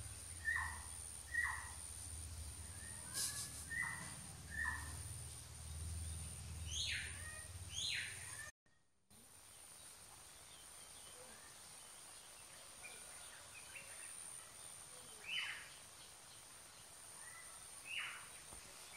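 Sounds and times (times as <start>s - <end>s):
insect drone: 0.0s - 8.2s
bird chirps: 0.3s - 1.8s, 2.6s - 5.3s, 5.9s - 8.5s.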